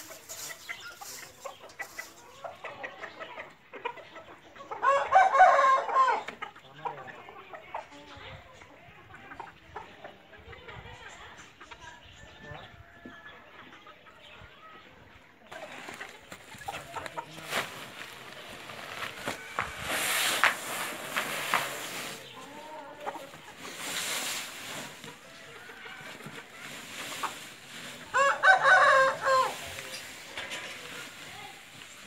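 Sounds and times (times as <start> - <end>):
bedding poured onto concrete: 0.0 - 2.1, 16.8 - 32.0
sack rustling and scraping: 15.5 - 32.0.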